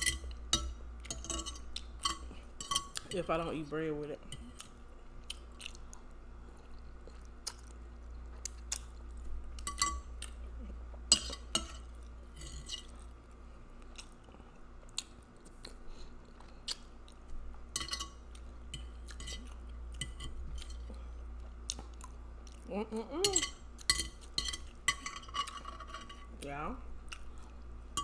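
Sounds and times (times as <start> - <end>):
wet chewing: 4.5 - 9.2, 18.3 - 22.7, 27.0 - 27.7.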